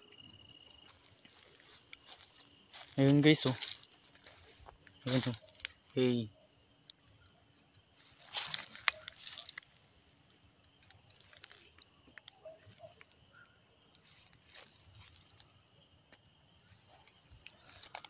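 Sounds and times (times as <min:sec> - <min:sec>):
crickets trilling: 0:00.0 - 0:18.0
leaves rustling: 0:00.9 - 0:06.2, 0:08.0 - 0:09.8, 0:14.0 - 0:15.6, 0:16.7 - 0:18.0.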